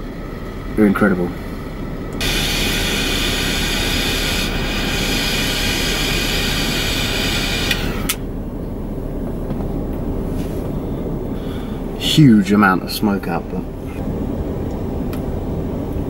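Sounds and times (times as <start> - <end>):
low steady hum: 0.0 - 16.0
lighter flame hissing: 2.2 - 8.2.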